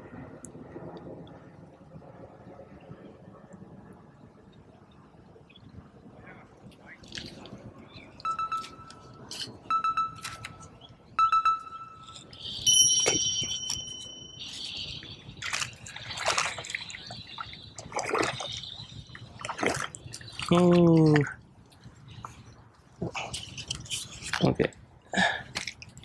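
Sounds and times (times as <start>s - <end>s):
splashing water: 14.8s - 21.4s.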